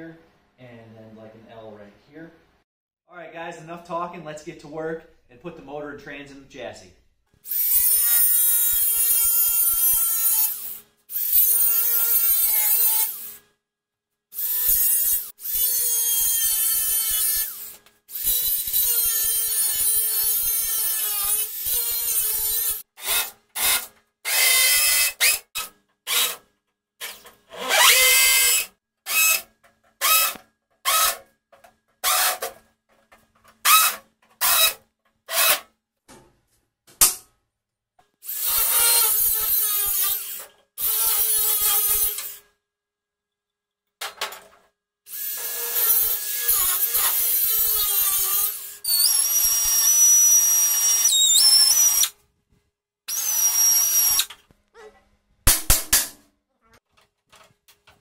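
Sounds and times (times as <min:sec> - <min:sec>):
angle grinder cutting metal: 0:07.5 - 0:13.4, 0:14.4 - 0:26.4, 0:27.0 - 0:29.4, 0:38.2 - 0:42.4, 0:45.1 - 0:52.1
cordless drill bursts: 0:14.4 - 0:26.4, 0:27.6 - 0:29.4, 0:38.2 - 0:42.4, 0:45.1 - 0:52.2, 0:53.1 - 0:54.3.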